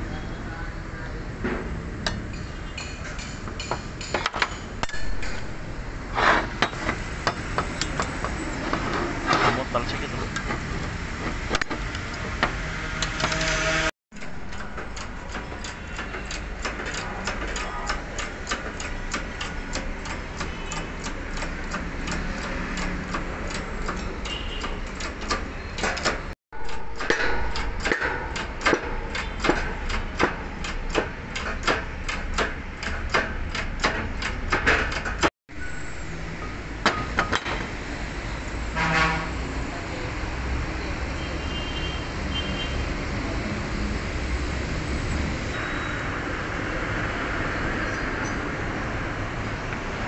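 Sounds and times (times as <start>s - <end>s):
workshop noise: 0.0s - 50.0s
hand tools tapping metal: 2.0s - 5.6s, 14.2s - 35.3s.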